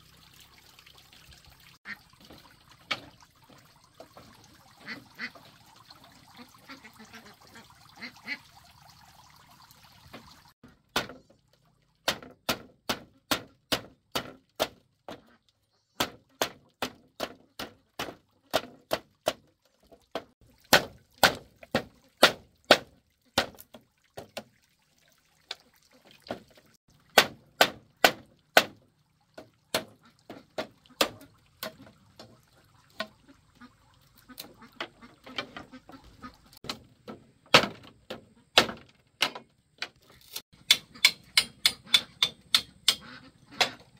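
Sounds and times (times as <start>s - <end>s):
machete chopping bamboo: 12.0s - 14.8s, 16.0s - 19.4s, 20.7s - 23.7s, 27.1s - 28.8s, 30.6s - 31.8s, 37.5s - 39.4s, 40.3s - 43.0s.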